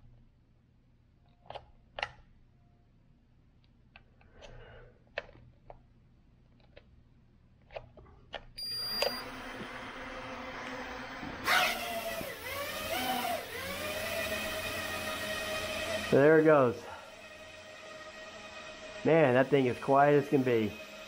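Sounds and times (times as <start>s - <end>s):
short beep: 8.6s - 9.3s
drone propeller whir: 9.1s - 21.0s.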